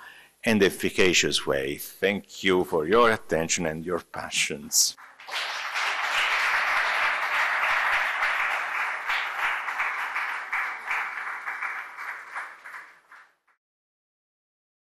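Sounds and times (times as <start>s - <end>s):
audience applauding: 5.0s - 13.4s.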